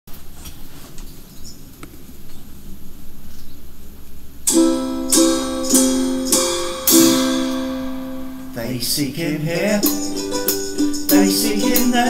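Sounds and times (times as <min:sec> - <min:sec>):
low steady hiss: 0:00.1 - 0:12.0
ukulele strumming chords: 0:04.5 - 0:12.0.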